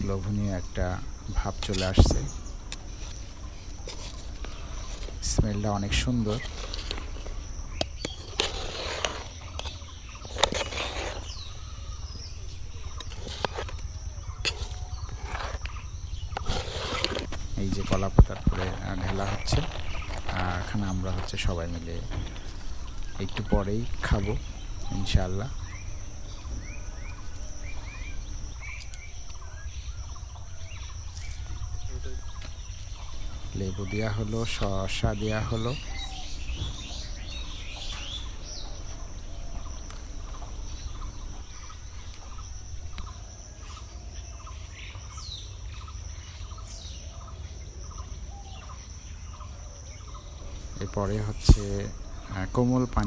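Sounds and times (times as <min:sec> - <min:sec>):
small birds chirping: 0:00.0 - 0:53.0
high-pitched insect drone: 0:51.0 - 0:52.4.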